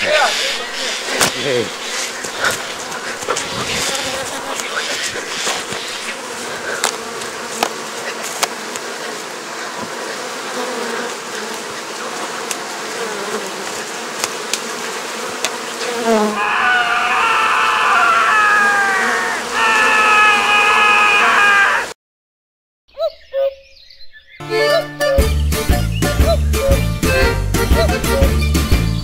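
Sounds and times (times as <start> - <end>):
buzzing rustling noise: 0.0 - 16.4.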